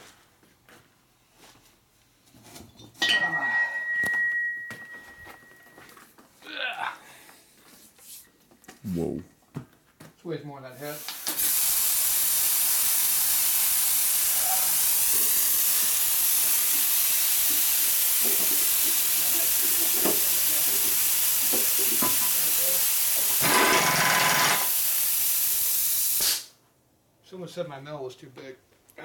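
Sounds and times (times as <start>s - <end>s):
brief steady tone: 3.5s - 5.8s
loud steady hiss: 10.8s - 26.6s.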